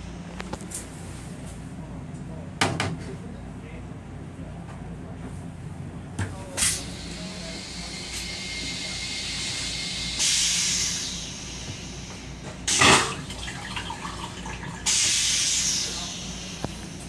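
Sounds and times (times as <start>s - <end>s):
railcar low hum: 0.0s - 17.0s
rinse water hissing: 6.6s - 17.0s
toilet flush whoosh: 12.6s - 16.6s.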